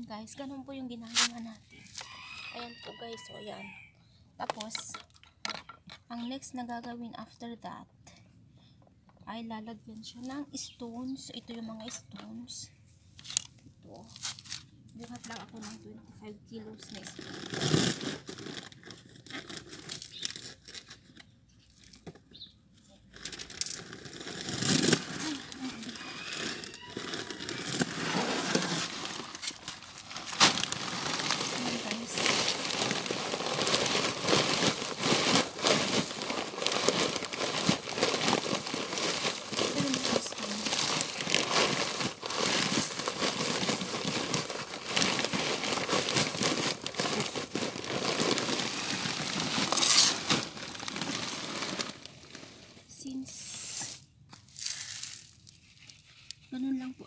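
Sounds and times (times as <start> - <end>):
plastic sack crinkling: 0.9 - 3.4, 13.2 - 15.8, 16.8 - 21.2, 23.1 - 56.9
gravel pouring and clattering: 23.2 - 52.8, 54.4 - 56.1.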